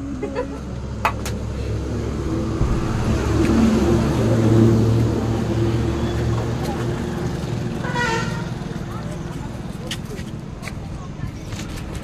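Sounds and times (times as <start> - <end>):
vehicle engine running: 0.0 - 7.8.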